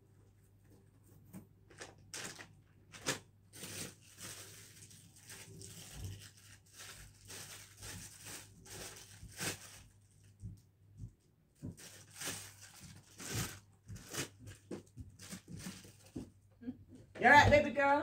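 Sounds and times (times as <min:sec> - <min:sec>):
plastic tearing: 0:01.7 - 0:10.3, 0:11.7 - 0:16.2
plastic packaging crinkling: 0:01.7 - 0:10.6, 0:11.7 - 0:16.2.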